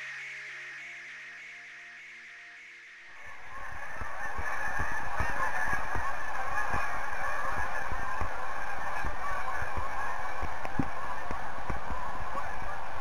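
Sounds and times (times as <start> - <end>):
geese honking in flight: 3.2 - 13.0.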